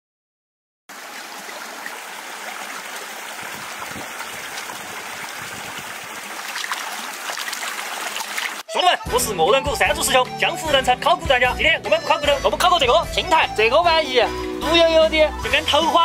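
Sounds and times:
stream trickling over rocks: 0.9s - 8.7s
water splashing and dripping: 0.9s - 8.7s.

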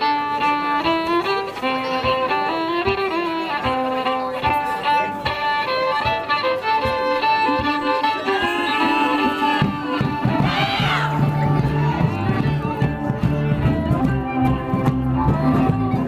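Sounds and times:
folk dance band melody: 0.0s - 16.0s
steady drum beat: 7.6s - 16.0s.

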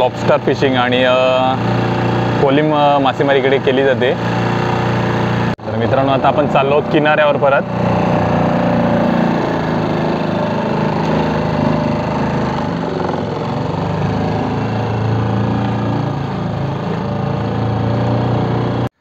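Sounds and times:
outboard motor running: 0.0s - 19.0s.

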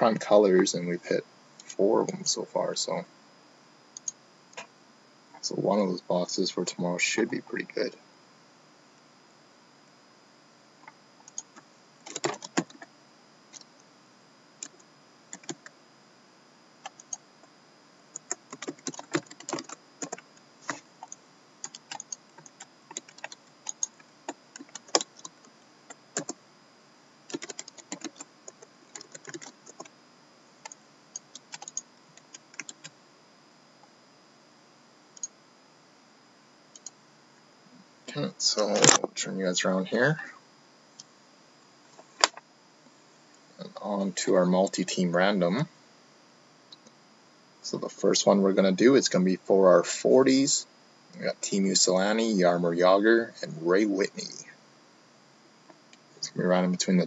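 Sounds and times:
typing on laptop keyboard: 12.1s - 12.9s, 15.4s - 15.7s, 18.2s - 24.0s, 24.6s - 25.3s, 27.3s - 29.9s, 30.6s - 32.9s.

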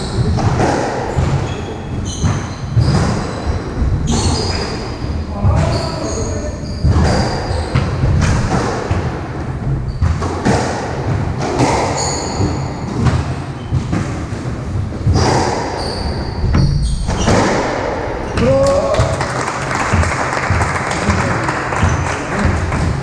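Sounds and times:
squash ball hitting rackets and walls: 0.0s - 6.1s, 6.7s - 23.0s
shoes squeaking on hardwood floor: 0.0s - 8.5s, 9.7s - 10.7s, 11.6s - 18.4s.

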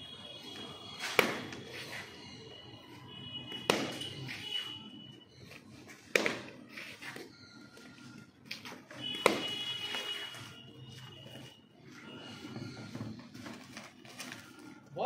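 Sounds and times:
cricket bat striking ball: 1.0s - 1.6s, 3.6s - 4.2s, 6.0s - 6.6s, 9.1s - 9.8s.

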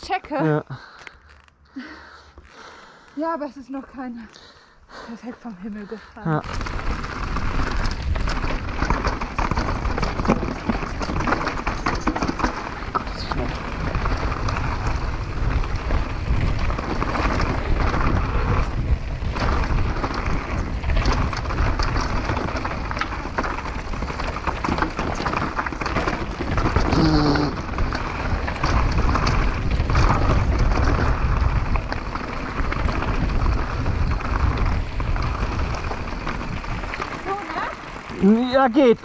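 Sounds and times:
bike tyres on gravel and dirt: 0.0s - 39.0s
bike rattling and knocking: 5.7s - 39.0s
wind rush over microphone: 6.4s - 37.3s.

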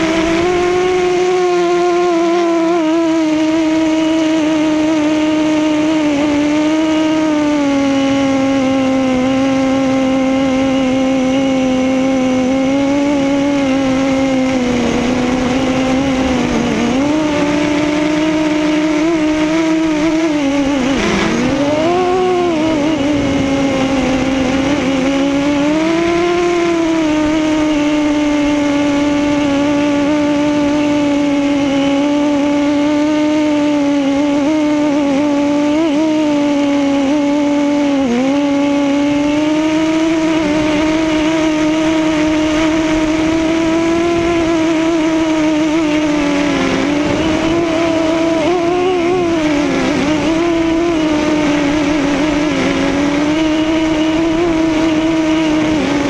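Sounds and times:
quadcopter motors whining: 0.0s - 56.0s.

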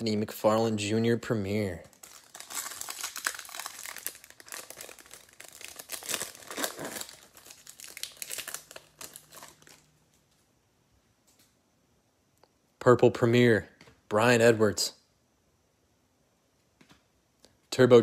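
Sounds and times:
foil wrapper crinkling and tearing: 1.8s - 9.9s.

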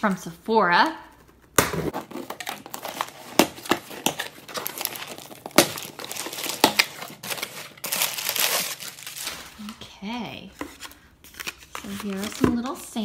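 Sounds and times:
packing tape tearing: 1.9s - 9.7s.

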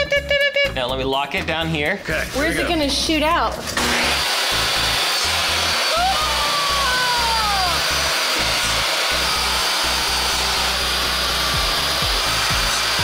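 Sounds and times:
table saw cutting wood: 3.6s - 13.0s.

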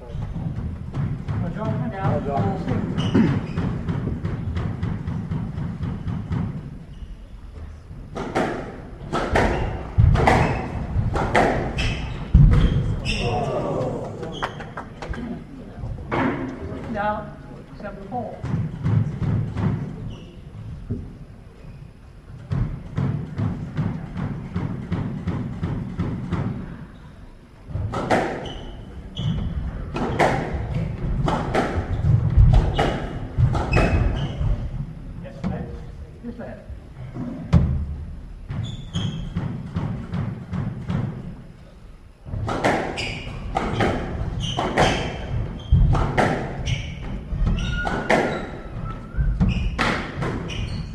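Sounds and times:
squash ball hitting rackets and walls: 0.0s - 15.0s, 18.2s - 21.1s, 22.3s - 27.0s, 27.7s - 35.7s, 37.4s - 41.5s, 42.2s - 50.9s
shoes squeaking on court: 1.6s - 4.4s, 9.4s - 13.5s, 28.3s - 30.3s, 31.8s - 34.7s, 38.5s - 39.5s, 42.8s - 50.9s
heavy thuds: 7.6s - 14.0s, 29.4s - 35.7s
squash ball cracks off rackets: 8.1s - 12.6s, 42.4s - 46.6s.

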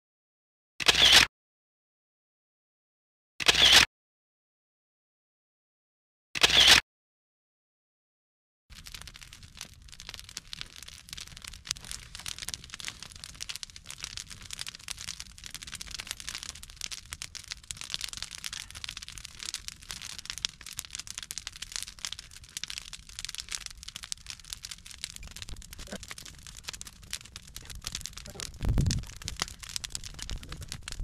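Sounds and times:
dense crackling and rustling: 8.7s - 31.0s
low rumble: 25.4s - 31.0s.

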